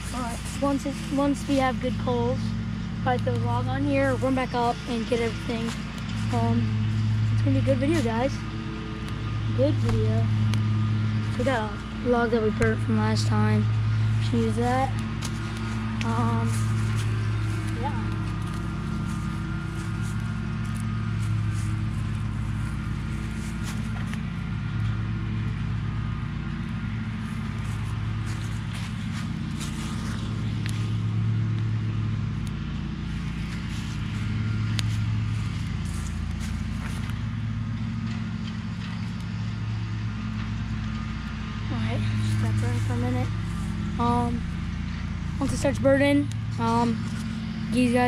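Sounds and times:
wood fire crackling and popping: 0.0 - 7.4, 26.4 - 39.3
low motor hum: 0.0 - 48.0.

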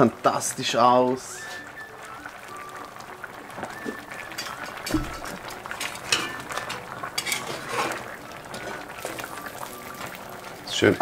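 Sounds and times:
stew simmering: 0.0 - 11.0
metal tongs scraping a pot: 4.3 - 9.4.

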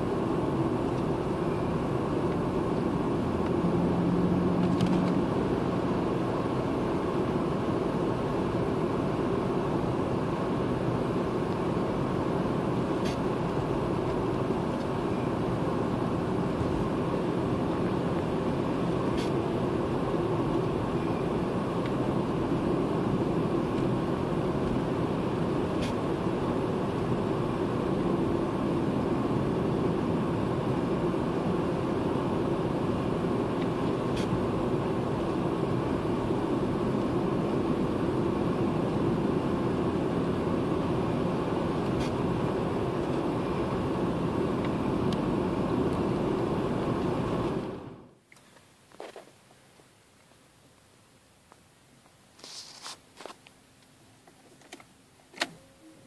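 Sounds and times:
car engine drone: 0.0 - 48.3
road noise: 0.0 - 56.0.

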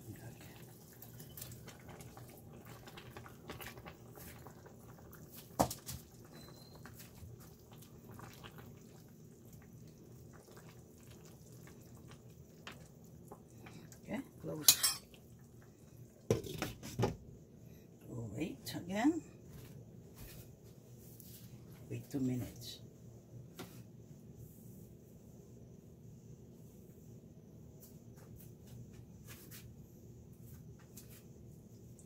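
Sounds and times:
ladle and bowl clinking on pot: 14.6 - 15.1.

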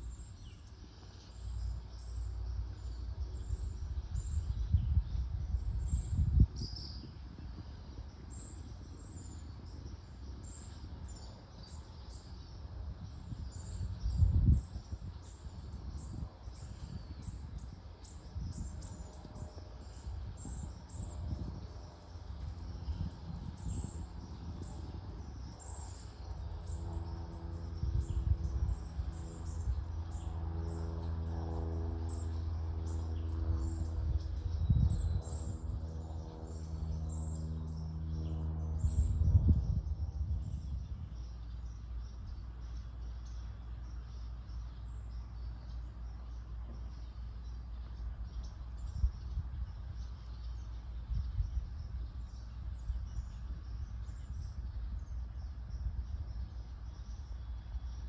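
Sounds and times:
distant droning hum: 0.0 - 58.0
low rumble: 12.9 - 44.6, 46.0 - 58.0.

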